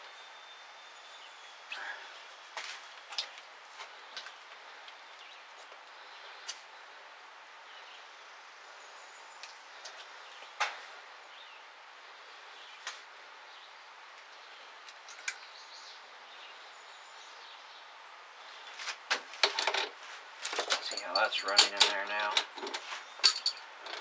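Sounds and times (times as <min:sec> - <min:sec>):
metallic clatter: 0:19.4 - 0:24.0.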